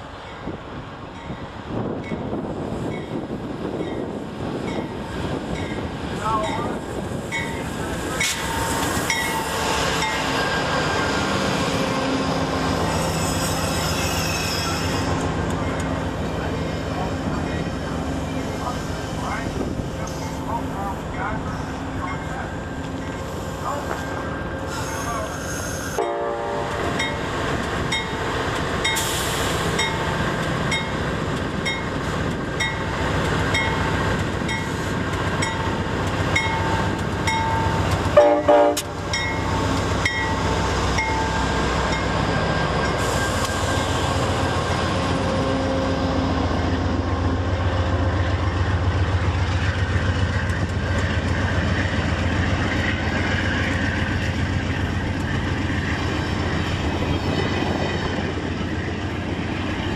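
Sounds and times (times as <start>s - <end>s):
train wheels on rails: 0.0s - 59.9s
locomotive bell ringing: 5.6s - 10.4s, 20.1s - 23.2s, 36.4s - 44.0s
train horn blast: 26.0s - 26.9s, 38.2s - 39.0s.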